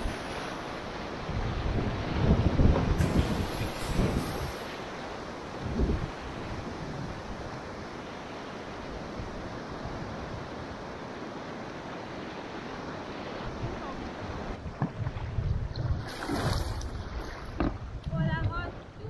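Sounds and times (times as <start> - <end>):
wind noise on microphone: 0.0 - 7.9, 12.0 - 19.0
river water rushing: 0.0 - 14.7.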